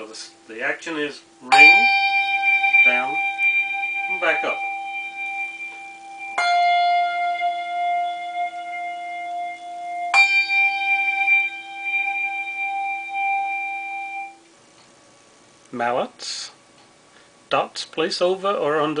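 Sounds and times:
handbell ringing with wavering tone: 0:01.5 - 0:14.4.

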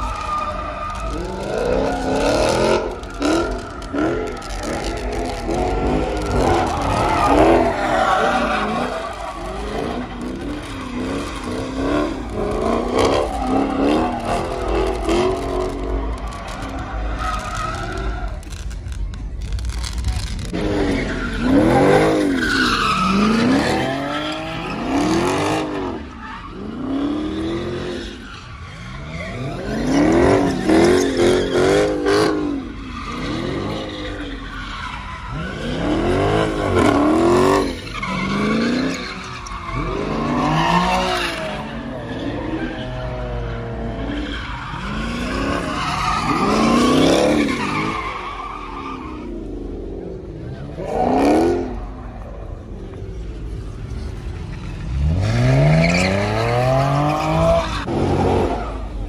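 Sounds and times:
car engine revving: 0:00.0 - 0:28.0
tyres squealing: 0:00.0 - 0:59.0.

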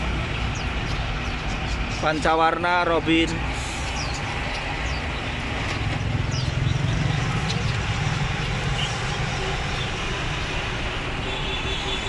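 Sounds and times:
traffic engines rumbling: 0:00.0 - 0:12.0
faint songbird chirps: 0:03.7 - 0:09.9.

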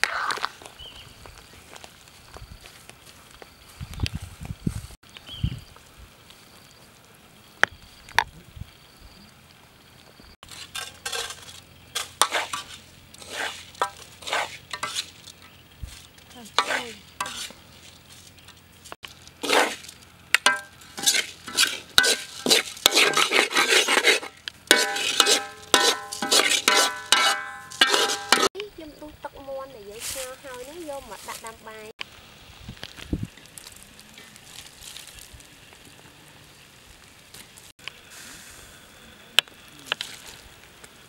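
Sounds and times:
spoon scraping rice in a wok: 0:10.4 - 0:15.6, 0:16.5 - 0:18.6, 0:19.4 - 0:28.5.

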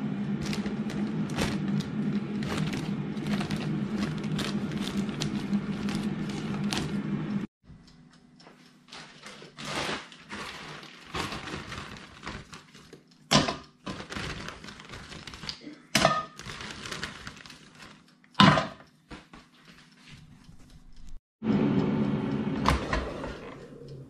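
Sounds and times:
chips handled in fryer basket: 0:09.0 - 0:13.1, 0:13.8 - 0:15.7, 0:16.3 - 0:18.0.

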